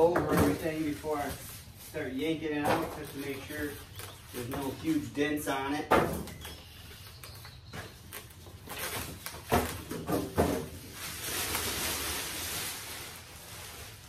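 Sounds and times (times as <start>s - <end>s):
plastic wrapping crinkling: 0.6s - 5.1s, 6.4s - 14.0s.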